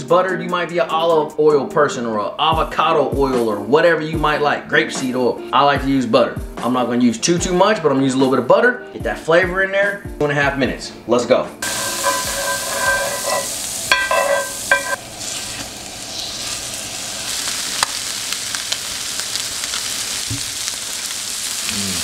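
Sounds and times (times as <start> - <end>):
metal spatula scraping pan: 11.6 - 15.6
fish sizzling in skillet: 11.6 - 22.0.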